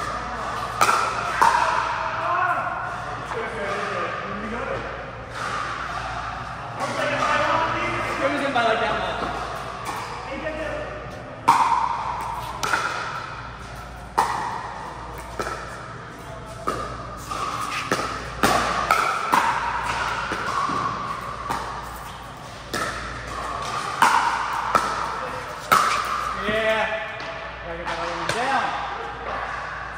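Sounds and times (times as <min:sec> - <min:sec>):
paddles hitting plastic ball: 0:16.6 - 0:26.4.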